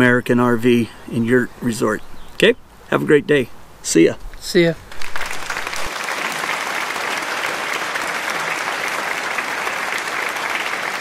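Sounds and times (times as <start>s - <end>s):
applause: 4.9s - 11.0s.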